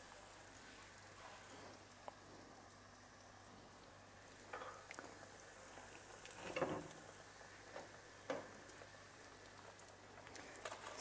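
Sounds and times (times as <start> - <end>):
doughnuts sizzling in oil: 0.0 - 11.0.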